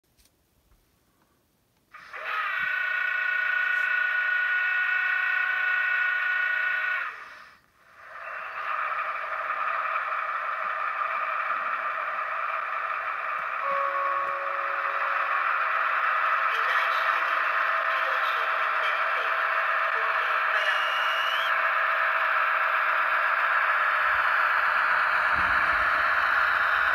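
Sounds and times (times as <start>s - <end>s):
diesel engine sound effect: 2.0s - 26.9s
held tones: 13.4s - 16.5s
model train multi-tone horn: 13.6s - 15.6s.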